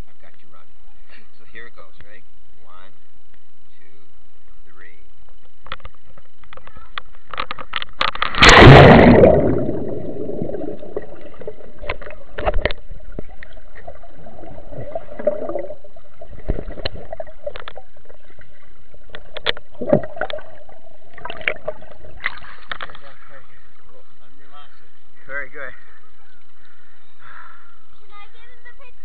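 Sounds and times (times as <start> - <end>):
faint underwater hum: 0.0 - 29.0
underwater clicks and knocks: 5.4 - 8.6, 9.2 - 23.1
camera splashing into water: 7.8 - 17.9, 19.1 - 23.1.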